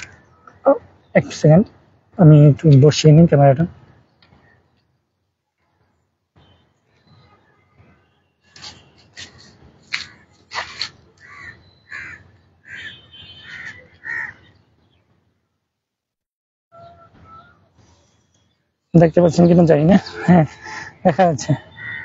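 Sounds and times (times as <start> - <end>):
crow cawing: 11.2 - 14.5, 20.5 - 21.0, 21.7 - 22.0.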